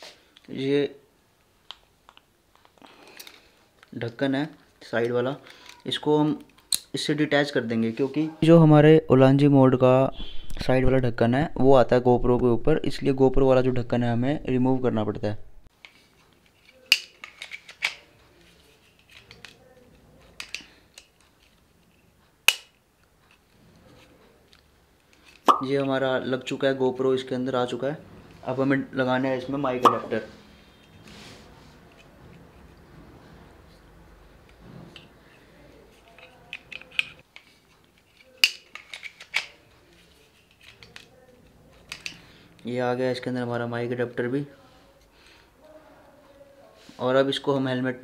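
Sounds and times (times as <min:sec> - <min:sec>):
plastic clicks and rattles: 0:36.0 - 0:39.6, 0:41.8 - 0:42.2.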